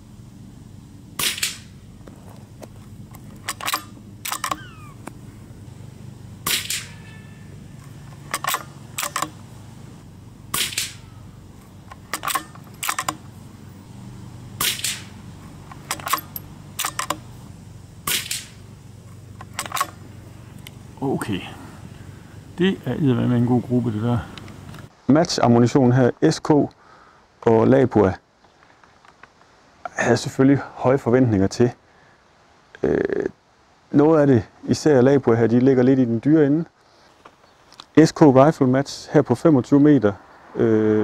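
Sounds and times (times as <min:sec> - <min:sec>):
rifle shots cracking: 0:01.2 - 0:01.8, 0:03.2 - 0:05.2, 0:06.4 - 0:07.1, 0:07.9 - 0:09.5, 0:10.5 - 0:11.1, 0:11.7 - 0:13.3, 0:14.6 - 0:17.3, 0:18.0 - 0:20.0.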